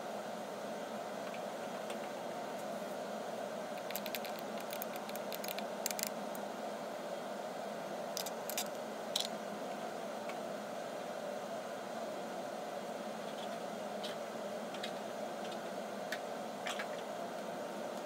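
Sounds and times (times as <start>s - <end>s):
room noise hiss: 0.0s - 18.0s
small sharp clicks: 3.8s - 6.1s.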